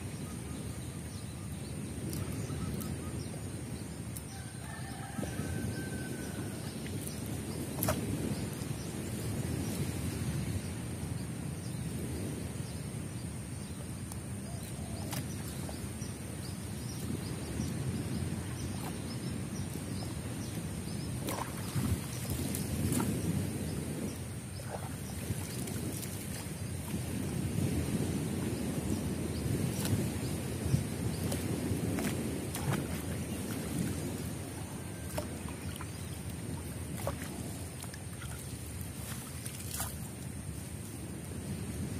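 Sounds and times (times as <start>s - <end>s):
wind rumbling on microphone: 0.0s - 41.9s
water sloshing: 20.9s - 23.3s, 24.5s - 27.4s, 29.7s - 40.2s
sharp water splashes: 21.1s - 23.2s, 29.7s - 40.2s.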